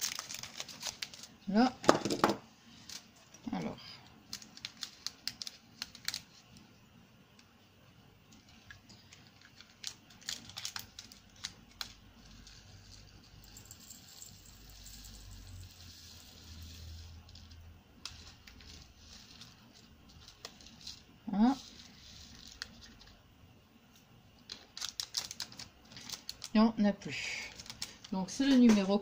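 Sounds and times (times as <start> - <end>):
beads rattling in pots: 0.0 - 3.5, 8.4 - 23.2, 24.4 - 29.0.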